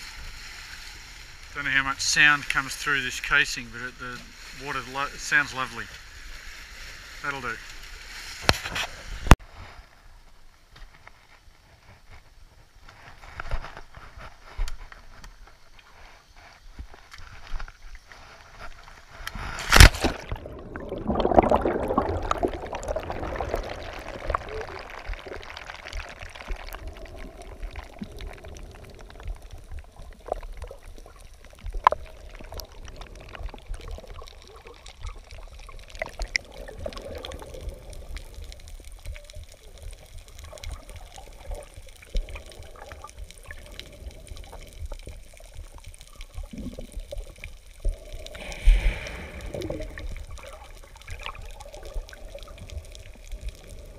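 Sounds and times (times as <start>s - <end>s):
underwater wash: 11.6s - 53.9s
water splash: 19.4s - 29.0s, 48.0s - 53.9s
rushing bubbling water: 19.4s - 53.9s.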